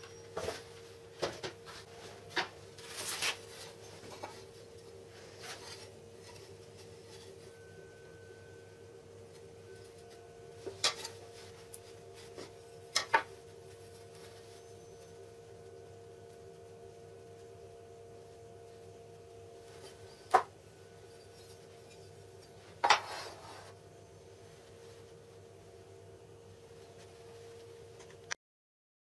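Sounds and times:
steady background hum: 0.0s - 28.4s
clatter with scrape: 22.8s - 23.8s.

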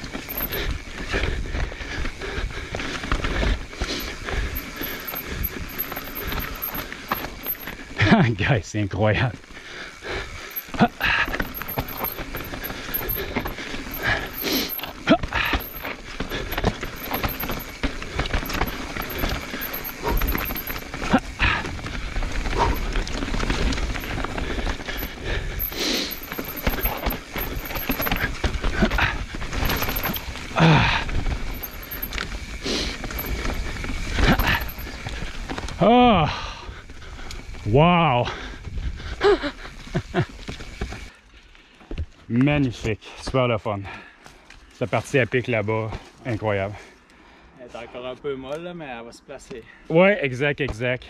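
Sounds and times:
bike knocks and rattles: 0.0s - 2.1s, 2.7s - 8.1s, 10.4s - 35.8s
bike tyres rolling over dirt: 0.0s - 42.6s.

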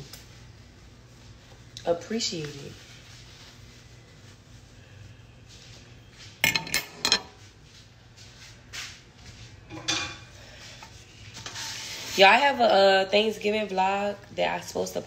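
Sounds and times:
low steady hum: 0.0s - 15.0s
kitchenware clinking and knocking: 6.4s - 7.4s, 9.7s - 10.3s.

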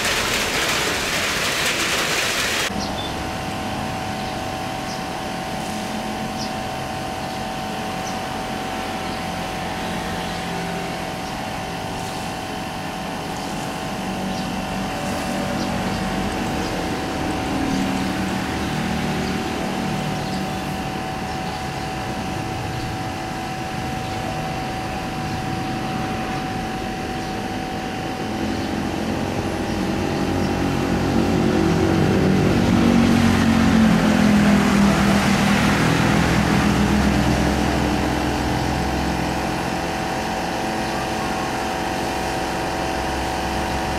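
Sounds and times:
jet engines rumbling with whine: 0.0s - 43.9s.

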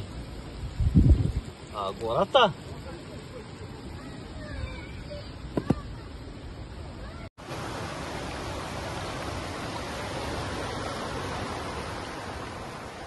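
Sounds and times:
river rushing over rapids: 7.4s - 13.0s.

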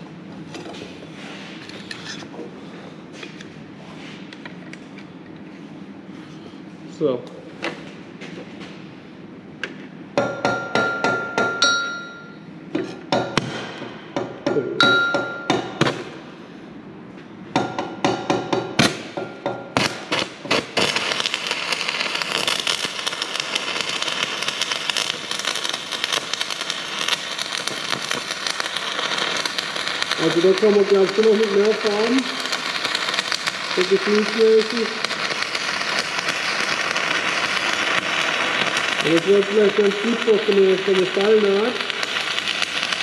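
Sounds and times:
welding arc crackling: 18.3s - 43.0s.

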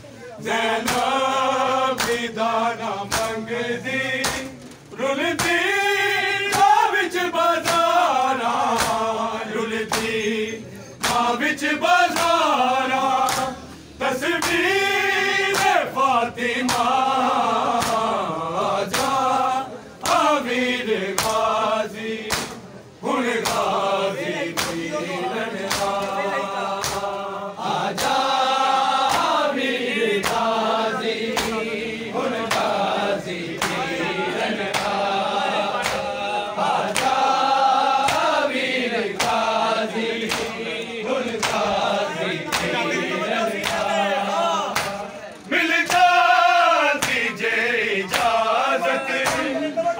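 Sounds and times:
men chanting a lament: 0.0s - 49.9s
hands slapping bare chests: 0.8s - 1.2s, 1.9s - 2.3s, 3.1s - 3.4s, 4.2s - 4.5s, 5.4s - 5.7s, 6.5s - 6.8s, 7.6s - 8.0s, 8.7s - 9.1s, 9.9s - 10.2s, 11.0s - 11.3s, 12.1s - 12.5s, 13.2s - 13.6s, 14.4s - 14.7s, 15.5s - 15.8s, 16.6s - 17.0s, 17.7s - 18.1s, 18.9s - 19.2s, 20.0s - 20.3s, 21.1s - 21.6s, 22.2s - 22.7s, 23.4s - 23.8s, 24.5s - 24.9s, 25.6s - 26.1s, 26.8s - 27.2s, 27.9s - 29.4s, 30.1s - 30.6s, 31.3s - 31.7s, 32.4s - 32.8s, 33.5s - 33.9s, 34.6s - 35.1s, 35.8s - 36.1s, 36.8s - 37.4s, 38.0s - 38.4s, 39.1s - 39.6s, 40.2s - 40.6s, 41.3s - 41.7s, 42.5s - 42.8s, 43.6s - 43.9s, 44.7s - 45.1s, 45.9s - 46.2s, 47.0s - 47.3s, 48.1s - 48.4s, 49.2s - 49.5s.

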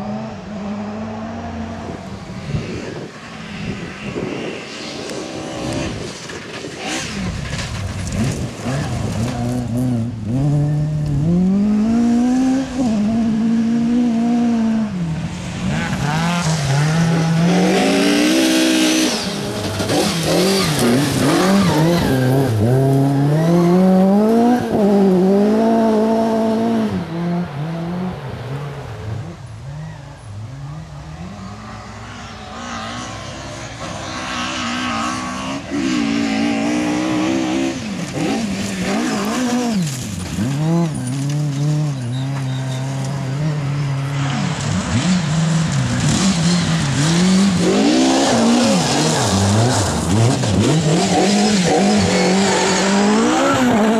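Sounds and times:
rally car engine revving hard: 15.6s - 29.3s, 32.4s - 53.9s.

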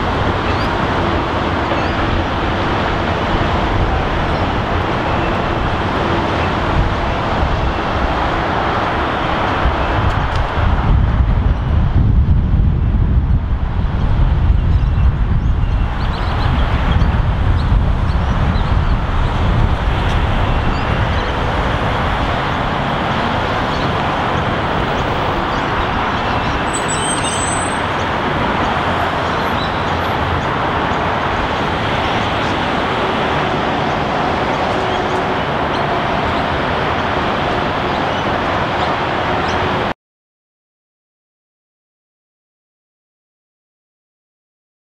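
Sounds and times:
freight train rumbling on bridge: 0.0s - 39.9s
road traffic roar: 0.0s - 40.0s
high squeal: 26.2s - 28.0s.

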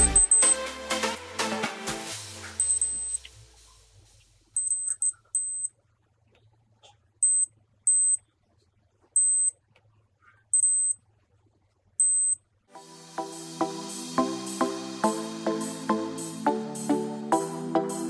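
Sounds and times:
multimeter continuity beeps: 0.0s - 0.6s, 2.6s - 3.3s, 4.6s - 5.7s, 7.2s - 8.2s, 9.2s - 9.6s, 10.5s - 11.0s, 12.0s - 12.4s
background music: 0.0s - 3.7s, 12.8s - 18.0s.

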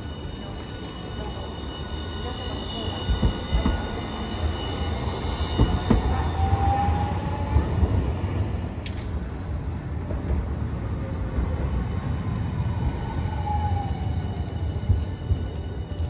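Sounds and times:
high whining tones: 0.0s - 8.8s
tram rumbling on street track: 0.0s - 16.0s.

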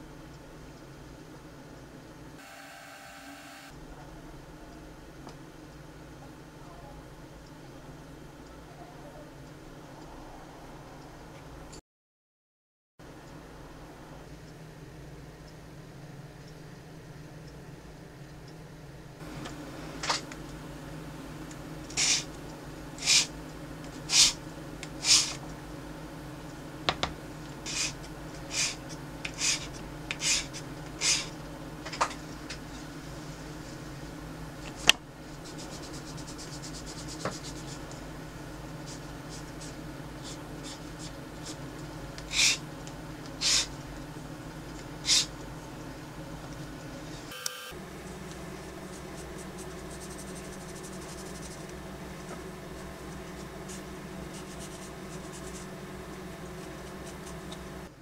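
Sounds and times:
faint steady hum: 0.0s - 11.8s, 13.0s - 58.0s
sandpaper scratching strokes: 22.0s - 22.3s, 23.0s - 23.3s, 25.0s - 25.4s, 27.7s - 28.8s, 29.4s - 31.3s, 35.4s - 37.9s, 48.8s - 51.7s, 53.1s - 55.8s.

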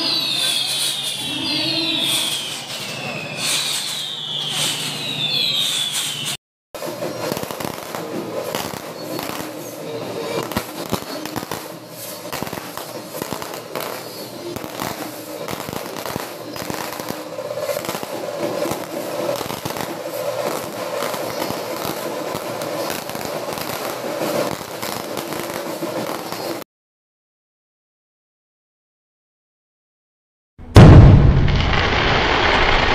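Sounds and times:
fireworks bangs and crackling: 0.0s - 26.6s, 30.7s - 32.9s.

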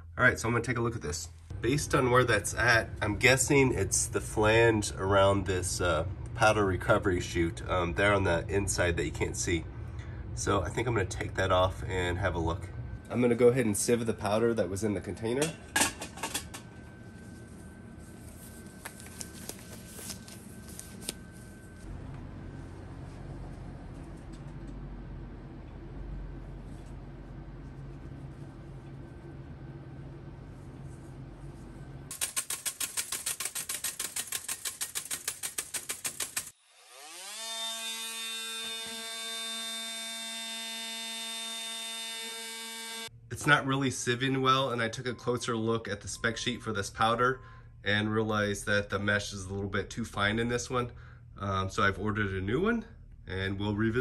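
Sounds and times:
low steady hum: 0.0s - 33.1s, 43.0s - 54.0s
sieve rattling metal powder: 32.1s - 36.6s
electric motor spinning up: 36.2s - 43.1s.

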